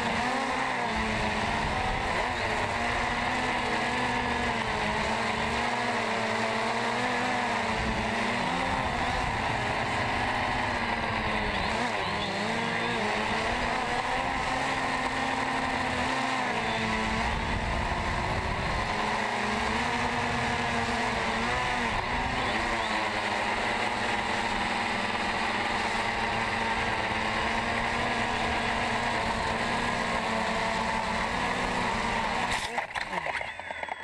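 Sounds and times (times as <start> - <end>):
drone propellers buzzing: 0.0 - 34.0.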